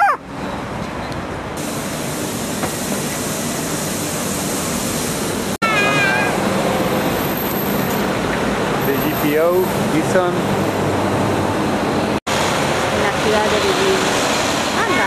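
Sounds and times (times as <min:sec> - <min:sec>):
city street traffic: 0:00.0 - 0:15.0
high wavering call: 0:05.6 - 0:06.5.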